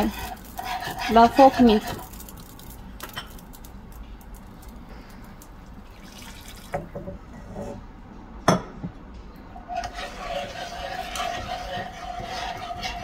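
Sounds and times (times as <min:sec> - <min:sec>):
whisk stirring: 0:00.0 - 0:02.8, 0:09.7 - 0:13.0
liquid pouring into a pan: 0:04.5 - 0:06.9.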